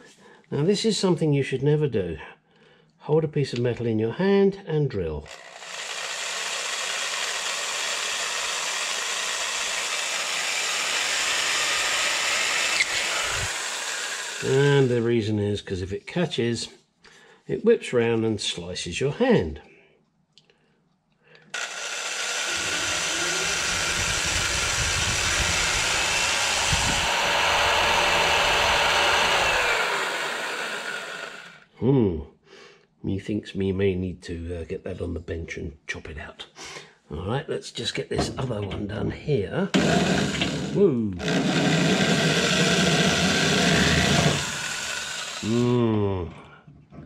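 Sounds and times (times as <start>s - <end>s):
electric drill boring into metal: 5.3s - 15.0s, 21.5s - 31.6s, 39.7s - 45.8s.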